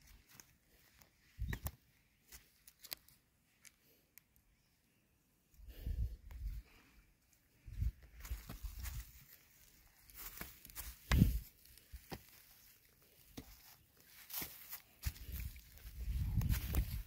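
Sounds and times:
footsteps crunching through dry grass: 0.0s - 3.2s, 7.6s - 17.0s.

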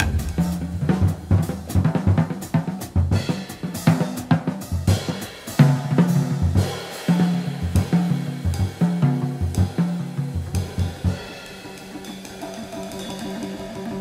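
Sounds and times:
double bass notes: 0.0s - 2.0s
jazz drum kit: 0.0s - 14.0s.

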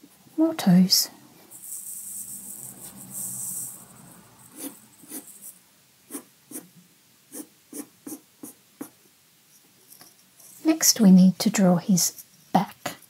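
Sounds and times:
pencil scratching on paper: 4.4s - 6.7s, 7.3s - 9.0s.

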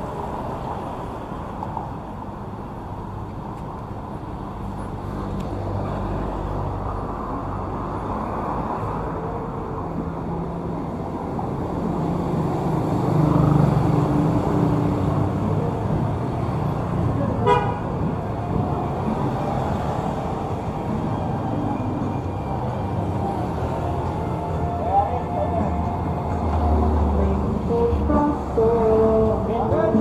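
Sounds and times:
vehicle engines passing: 0.0s - 30.0s
car horn toot: 17.4s - 17.8s.

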